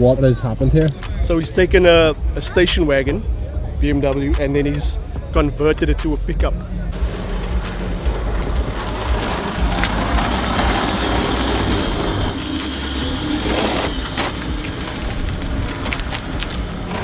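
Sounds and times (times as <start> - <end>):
car driving slowly past: 6.9 - 17.0.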